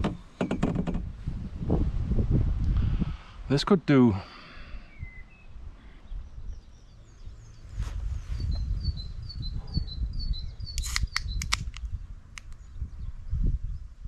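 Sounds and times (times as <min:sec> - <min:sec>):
wind rumble on microphone: 0:00.0 - 0:03.5, 0:04.8 - 0:14.0
songbird chirping: 0:04.3 - 0:14.0
sharp clicks: 0:10.8 - 0:12.6.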